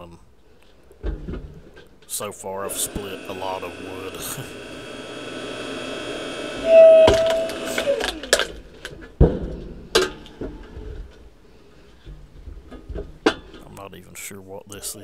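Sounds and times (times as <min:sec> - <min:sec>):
log splitter motor running: 0:02.6 - 0:08.9
log splitting with squealing crack: 0:06.6 - 0:09.0.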